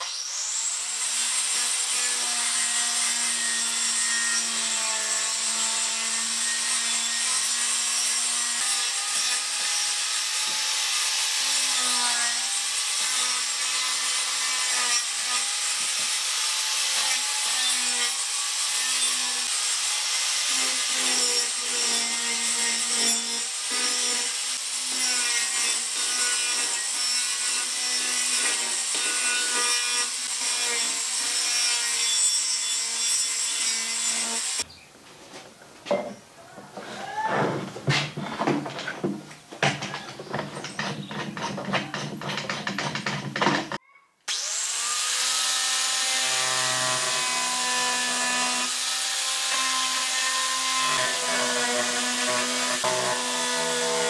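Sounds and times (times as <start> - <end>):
angle grinder grinding wood: 0.0 - 34.7, 37.9 - 54.0.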